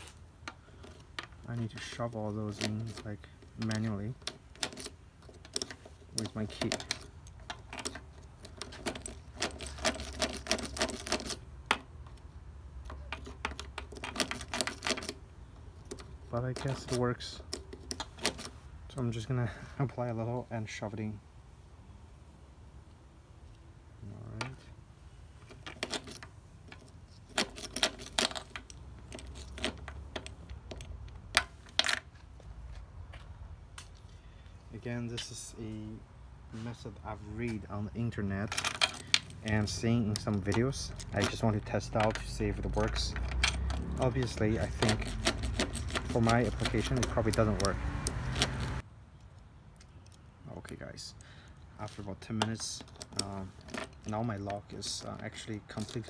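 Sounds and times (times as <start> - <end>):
key clicking and rattling in lock: 2.4 - 12.2, 12.8 - 18.5, 25.5 - 32.1, 38.5 - 48.8
keys jangling in ignition lock: 25.5 - 31.0, 38.5 - 49.3.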